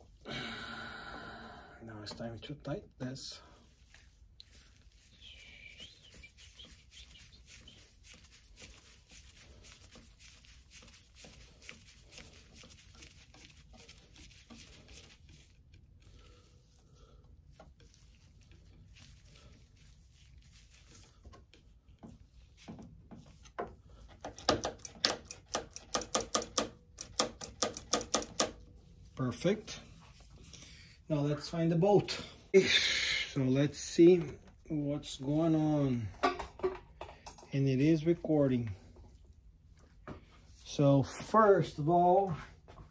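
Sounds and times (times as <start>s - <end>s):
screwdriver ticking and scraping: 24.1s - 28.6s.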